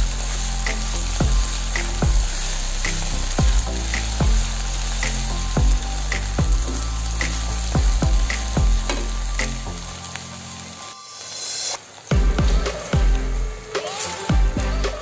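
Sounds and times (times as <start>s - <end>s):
music with thudding beat: 0.0s - 2.3s, 2.9s - 9.7s, 12.1s - 13.4s, 14.3s - 15.0s
vegetables sizzling in hot oil: 0.0s - 15.0s.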